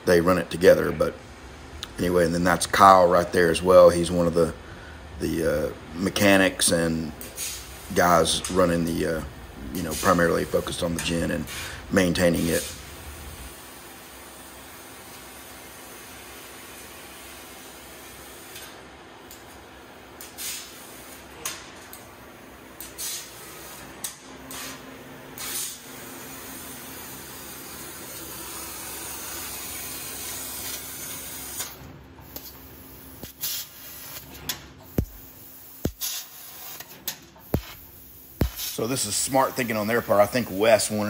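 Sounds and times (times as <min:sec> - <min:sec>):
hiss of laser cutter gas: 0:07.3 - 0:07.9, 0:20.2 - 0:21.2, 0:22.9 - 0:23.8, 0:25.4 - 0:38.8
sharp pops and clicks: 0:34.9 - 0:35.3, 0:35.9 - 0:36.2, 0:37.4 - 0:38.7.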